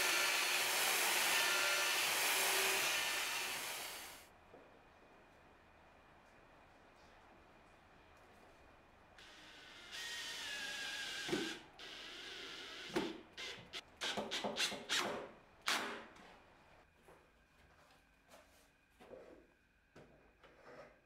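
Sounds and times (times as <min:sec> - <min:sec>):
cordless drill whine: 0:09.2 - 0:13.6.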